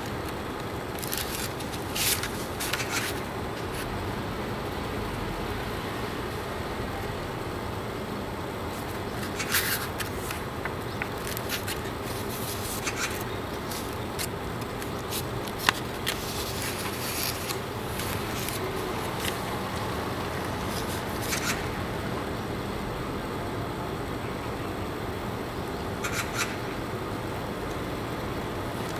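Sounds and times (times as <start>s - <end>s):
paper pages rustling: 0.0s - 3.9s, 8.7s - 21.7s
low background noise: 0.0s - 28.9s.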